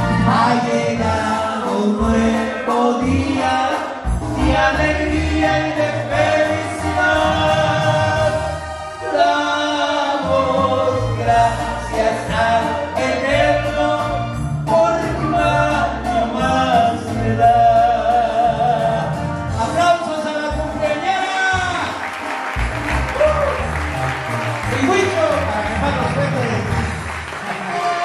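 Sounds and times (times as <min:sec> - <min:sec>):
man singing into microphone: 0:00.0 - 0:21.7
musical accompaniment: 0:00.0 - 0:28.0.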